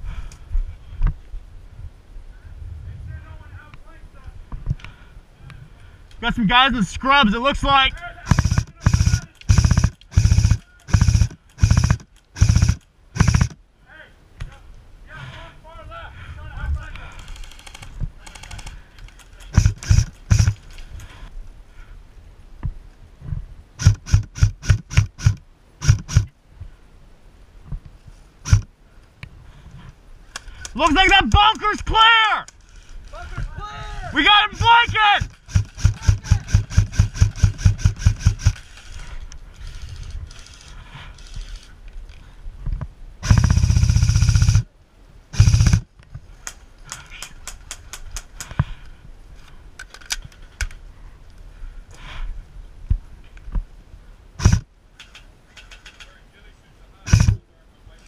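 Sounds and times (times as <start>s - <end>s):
sharp ticks and cracks: 7.9s - 13.6s, 16.8s - 21.3s, 23.8s - 26.4s, 28.4s - 29.3s, 30.2s - 33.3s, 34.2s - 42.3s, 43.2s - 44.7s, 45.4s - 48.9s, 49.8s - 51.5s, 54.4s - 56.2s, 57.1s - 57.4s
airsoft rifle shots: 8.2s - 13.6s, 19.5s - 20.6s, 23.8s - 26.3s, 28.4s - 28.7s, 34.2s - 38.6s, 43.2s - 44.7s, 45.4s - 45.9s, 54.4s - 54.7s, 57.1s - 57.4s.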